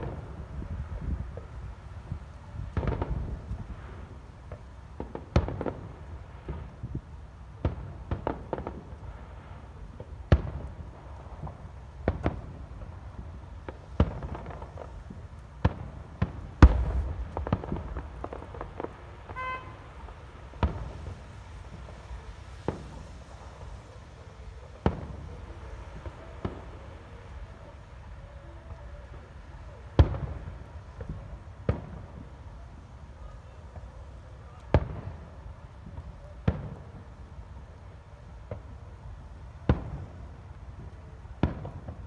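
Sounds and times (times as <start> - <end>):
firework shells bursting: 15.6 - 23.7.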